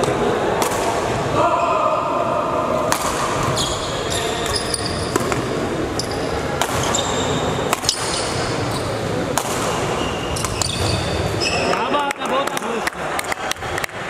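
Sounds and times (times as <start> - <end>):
racket striking shuttlecock: 0.6 - 1.0, 2.9 - 3.6, 4.4 - 5.6, 6.6 - 6.9, 7.7 - 8.5, 9.3 - 11.0
shoes squeaking on court floor: 3.4 - 9.2, 9.8 - 12.0.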